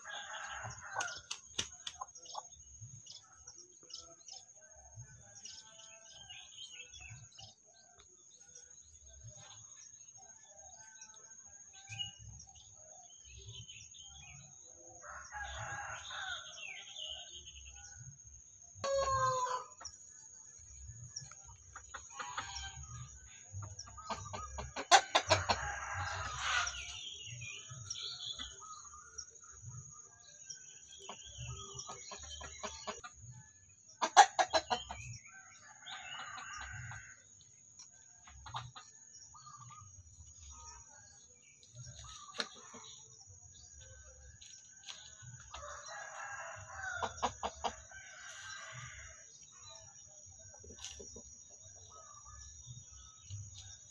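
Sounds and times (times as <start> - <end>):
rooster crowing: 15.0 - 16.6, 25.2 - 26.9, 45.6 - 47.1
hens clucking: 21.4 - 27.0, 31.1 - 33.2, 33.9 - 35.2, 46.4 - 48.4.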